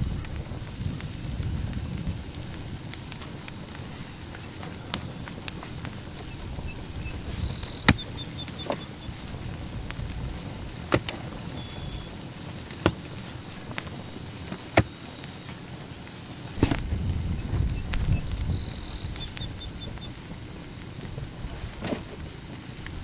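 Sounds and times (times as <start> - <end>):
pick striking hard soil: 2.9 - 9.1, 10.7 - 15.6, 16.5 - 17.1.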